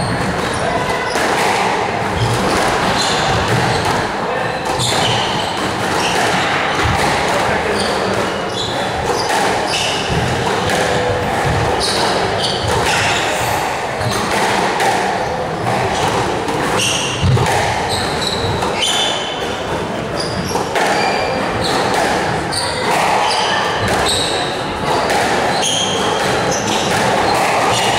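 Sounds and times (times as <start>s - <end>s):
ball hitting court walls: 0.0s - 19.6s, 20.2s - 27.9s
squash ball hit by rackets: 0.1s - 19.6s, 20.2s - 27.9s
shoes squeaking on wooden floor: 7.6s - 14.3s, 16.8s - 19.2s, 20.1s - 21.9s, 22.5s - 27.9s.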